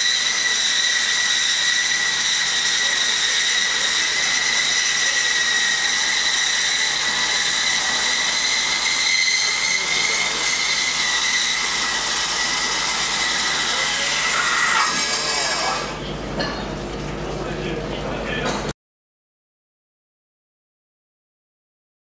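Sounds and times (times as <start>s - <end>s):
wire saw high-pitched whine: 0.0s - 17.1s.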